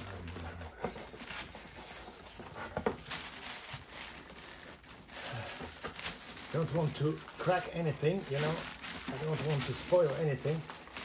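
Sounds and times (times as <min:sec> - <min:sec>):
plastic wrapping rustling: 0:00.0 - 0:11.0.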